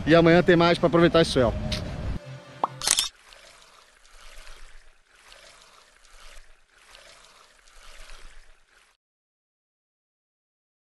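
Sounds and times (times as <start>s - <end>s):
faint rushing water pour: 2.8s - 9.0s.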